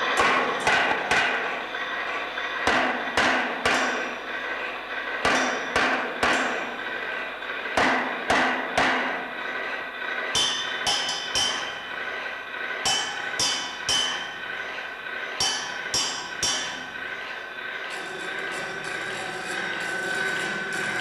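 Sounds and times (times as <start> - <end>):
hammer striking rusty metal: 2.7 - 4.1, 5.2 - 6.6, 7.8 - 9.2, 10.4 - 11.8, 12.8 - 14.4, 15.4 - 16.9.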